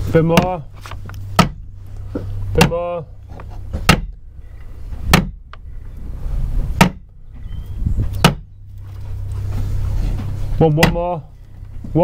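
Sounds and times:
steady low hum: 0:00.0 - 0:12.0
hammer blows on timber: 0:05.0 - 0:05.4, 0:06.8 - 0:07.1.

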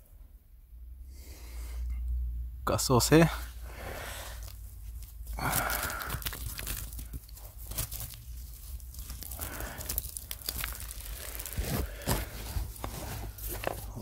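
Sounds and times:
hand scraping soil: 0:03.2 - 0:14.0
loose earth falling: 0:03.7 - 0:14.0
small crunches and clicks: 0:04.3 - 0:14.0.

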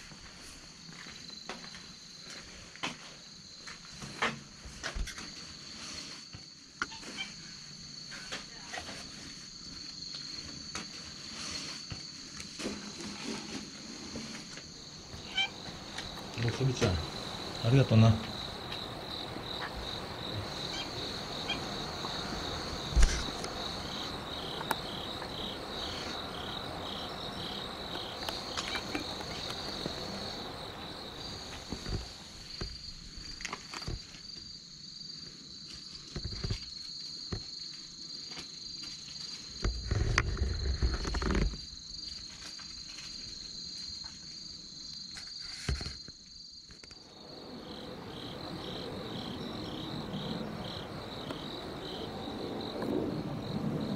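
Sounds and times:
crickets chirping: 0:00.0 - 0:53.9
microphone handling noise: 0:22.9 - 0:23.4.

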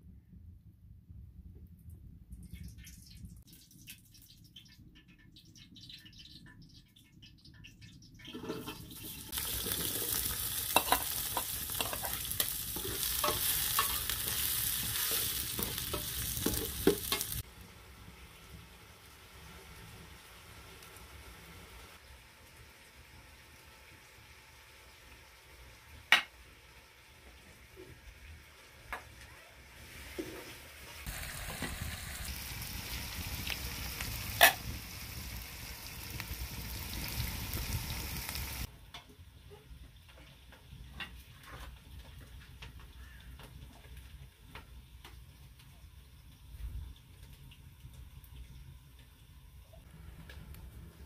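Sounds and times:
onions sizzling in oil: 0:08.9 - 0:38.7
metal spoon scraping a pot: 0:09.6 - 0:17.4.

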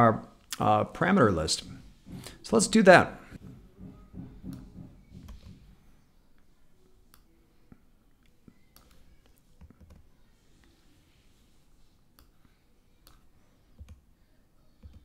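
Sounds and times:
computer keyboard and mouse clicks: 0:08.7 - 0:10.1, 0:13.8 - 0:14.0, 0:14.8 - 0:15.0.

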